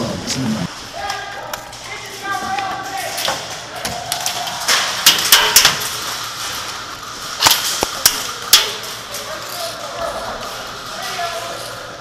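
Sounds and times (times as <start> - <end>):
sharp snaps and knocks: 7.4 - 8.8.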